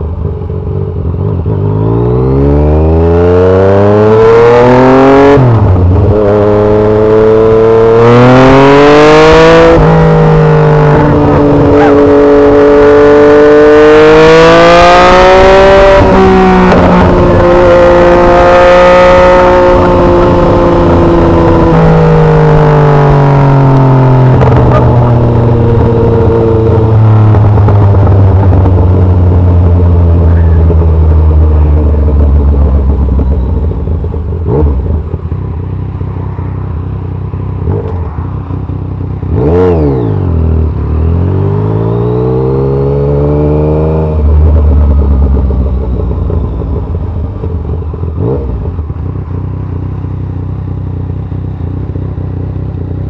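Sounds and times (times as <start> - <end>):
motorcycle engine: 0.0 - 53.0
throttle blip and rising rev: 2.2 - 28.8.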